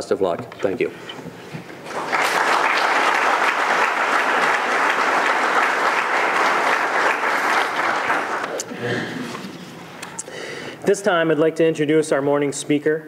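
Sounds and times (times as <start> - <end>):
audience applauding: 1.8 - 8.7.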